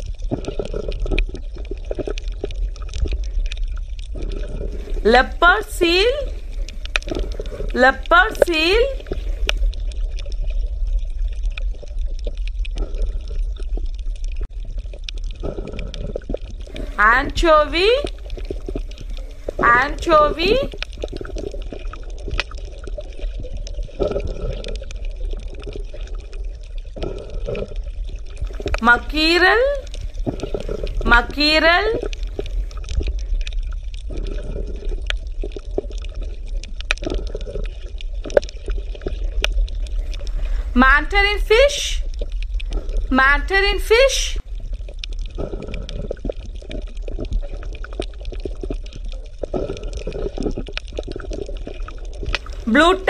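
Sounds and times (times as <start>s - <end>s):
water sloshing and lapping: 0.0s - 41.0s, 41.6s - 43.4s, 44.0s - 53.0s
clicks and pops: 0.1s - 53.0s
small splashes and drips: 44.4s - 52.7s.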